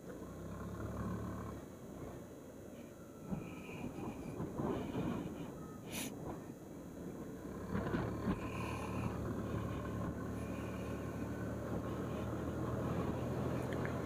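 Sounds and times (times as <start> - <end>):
scooter engine humming: 1.6 - 14.0.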